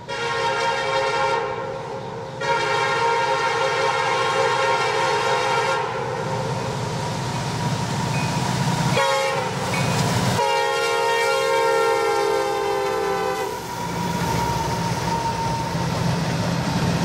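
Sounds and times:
train air horn blasts: 0.0s - 6.2s, 8.9s - 9.6s, 10.4s - 15.8s
diesel locomotive engines rumbling: 0.0s - 17.0s.

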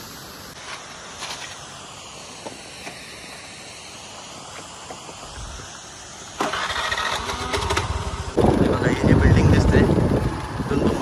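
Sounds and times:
outdoor hiss: 0.0s - 11.0s
motor scooter engine: 6.4s - 11.0s.

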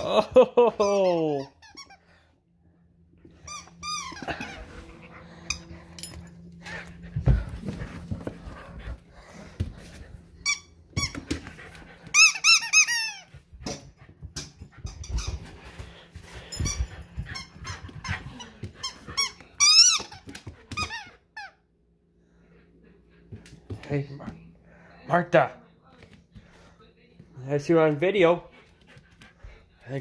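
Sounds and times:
squeaky dog toy squeaks: 12.2s - 13.3s.

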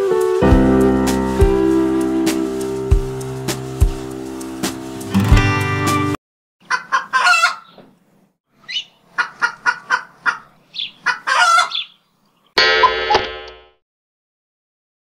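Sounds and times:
fowl clucking: 6.6s - 7.8s, 8.7s - 11.9s.

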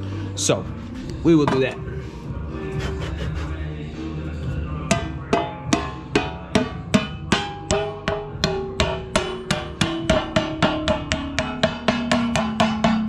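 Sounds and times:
hammering lid onto metal can: 4.9s - 13.0s.

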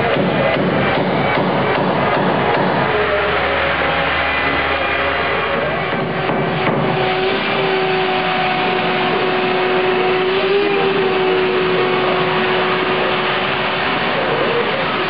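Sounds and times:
machine motor running: 0.0s - 15.0s.

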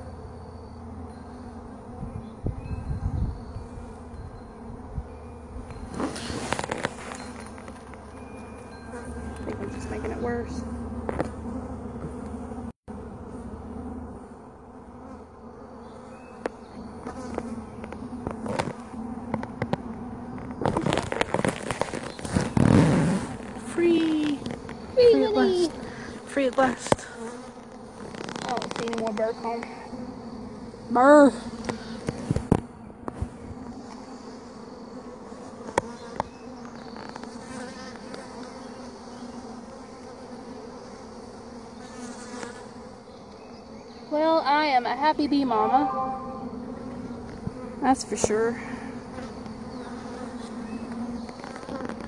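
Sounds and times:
bees humming: 0.0s - 52.0s
honeybees buzzing: 0.0s - 52.0s
crackling and rustling: 5.8s - 8.2s, 16.4s - 29.8s, 49.3s - 52.0s.

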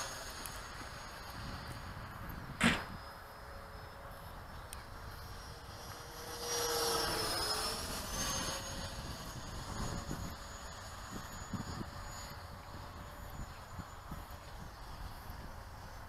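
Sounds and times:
model jet fan whine: 0.0s - 16.0s
sharp thump: 2.6s - 3.0s.

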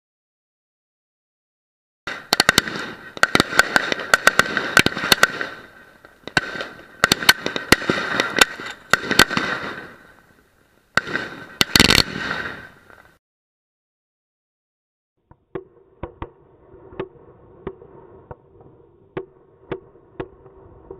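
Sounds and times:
firework bangs and crackle: 2.1s - 13.2s.

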